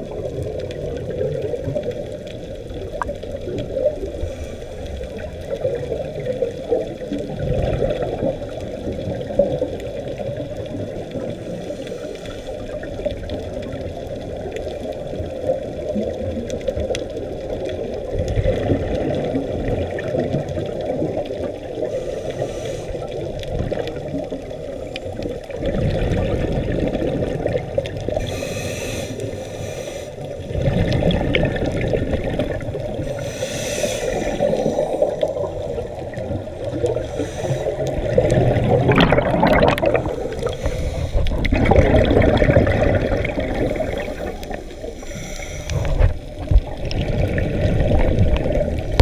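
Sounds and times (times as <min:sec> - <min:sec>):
underwater bubbles gurgling: 0:00.0 - 0:49.0
hissing regulator breaths: 0:21.8 - 0:23.2, 0:28.2 - 0:30.4, 0:33.0 - 0:35.4, 0:36.9 - 0:38.0, 0:40.0 - 0:41.5, 0:43.9 - 0:46.2.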